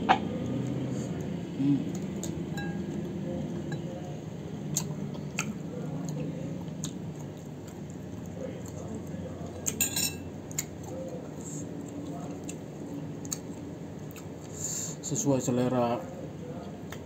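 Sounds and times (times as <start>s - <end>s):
person chewing crunchy fruit: 4.6s - 9.8s, 10.5s - 14.7s.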